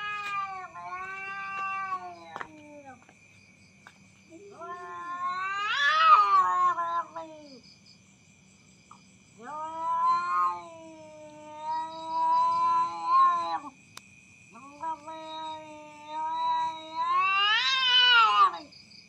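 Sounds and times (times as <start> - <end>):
cats yowling: 0.0 - 3.0, 4.3 - 7.6, 9.4 - 13.8, 14.6 - 18.7.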